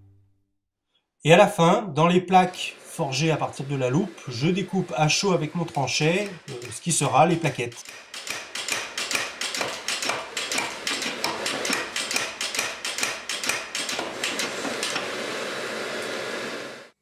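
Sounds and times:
power hammer striking metal: 2.3s - 15.3s.

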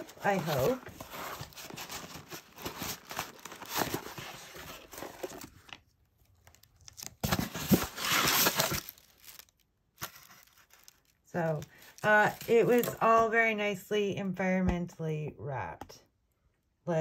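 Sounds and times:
cardboard and paper rustling: 0.0s - 13.4s.

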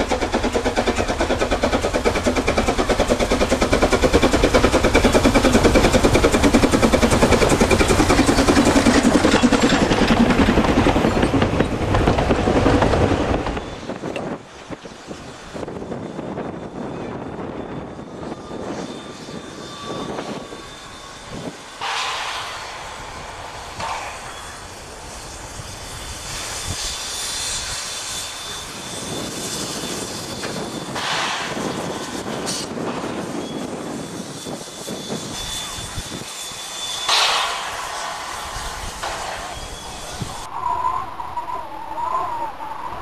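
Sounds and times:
steam bursts: 0.0s - 16.5s, 18.0s - 41.4s
steam hissing: 0.0s - 16.8s, 17.4s - 43.0s
faint high thin whine: 13.6s - 43.0s.

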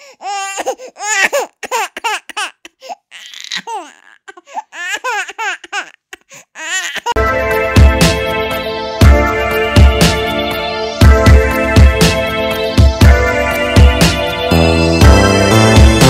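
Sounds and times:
electronic music: 7.2s - 16.0s.

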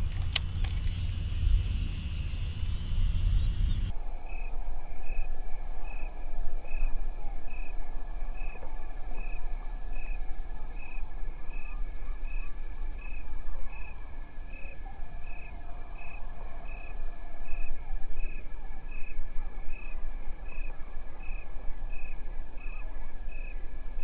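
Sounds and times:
low rumble: 0.0s - 4.0s.

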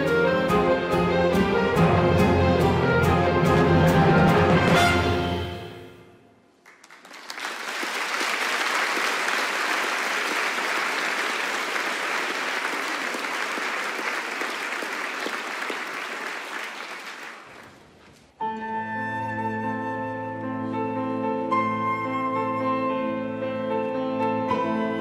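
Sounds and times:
orchestra holding notes: 0.0s - 6.2s
audience applauding: 6.5s - 18.0s.

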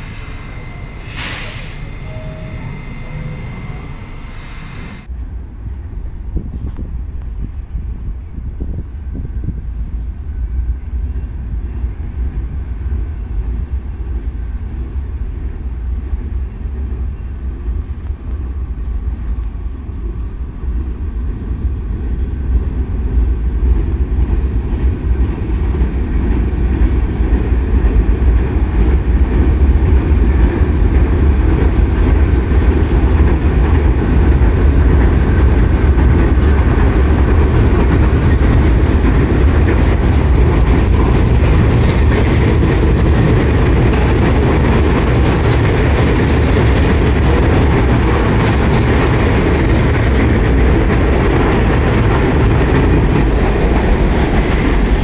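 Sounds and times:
high whine: 0.0s - 6.3s
train wheels rumbling on rails: 0.0s - 55.0s.

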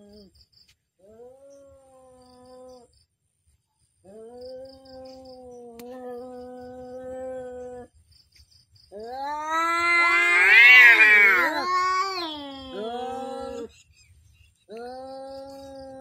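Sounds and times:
cat yowling: 9.0s - 13.7s
second cat yowling: 9.0s - 13.7s.

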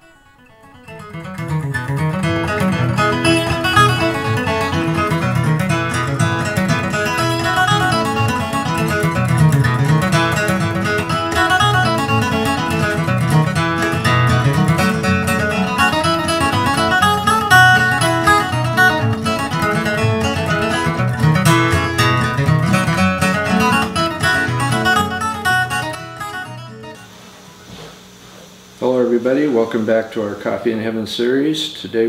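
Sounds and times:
acoustic guitar background music: 0.0s - 30.6s.

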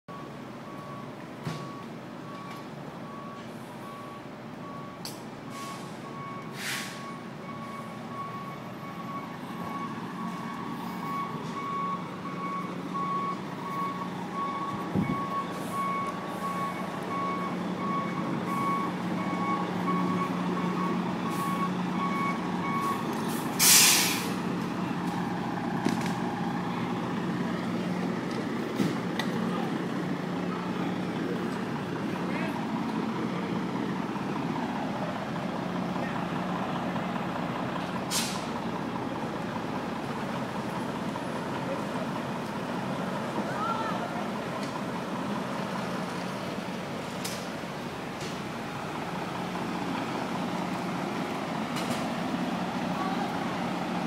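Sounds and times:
truck engine running: 0.1s - 54.0s
truck reversing alarm beeping: 0.1s - 54.0s
air brakes hissing: 5.5s - 7.2s, 22.9s - 24.4s, 38.1s - 38.6s.

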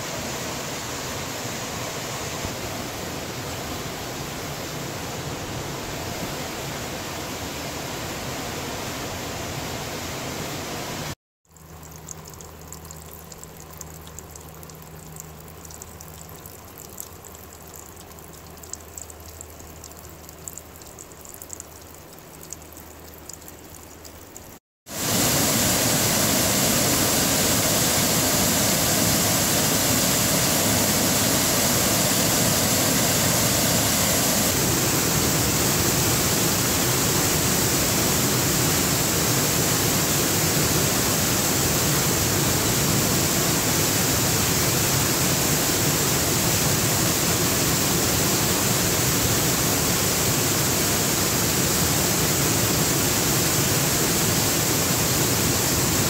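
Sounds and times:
waterfall rushing: 24.9s - 56.0s.

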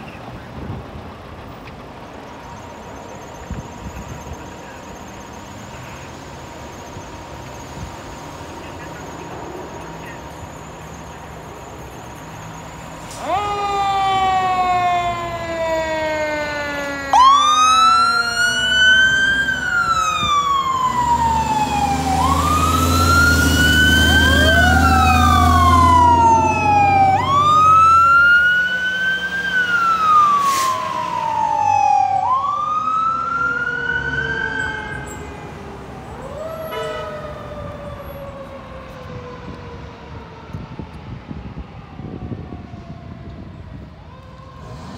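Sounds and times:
truck engine: 0.0s - 44.9s
fire engine sirens wailing: 0.2s - 44.9s.

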